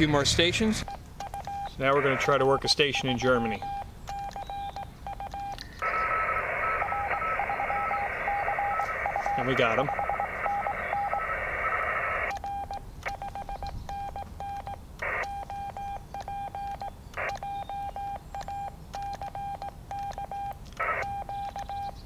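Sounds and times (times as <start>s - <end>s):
morse code beeps: 0.8s - 22.0s
radio band hiss: 1.7s - 3.7s, 5.6s - 12.3s, 15.0s - 15.4s, 20.8s - 21.2s.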